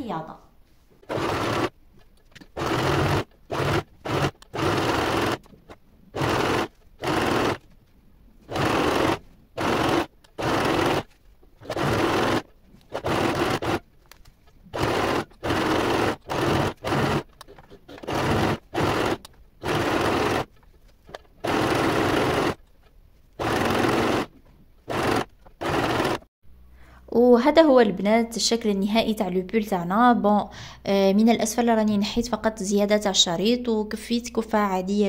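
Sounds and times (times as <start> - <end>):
sewing machine stitching: 1.0 - 7.7, 8.4 - 13.9, 14.7 - 20.6, 21.3 - 22.6, 23.4 - 26.3.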